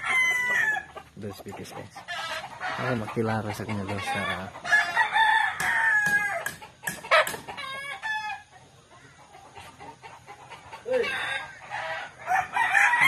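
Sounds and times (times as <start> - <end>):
rooster crowing: 0.0 - 1.0, 4.1 - 8.4, 10.9 - 13.0
chickens clucking: 0.0 - 12.5.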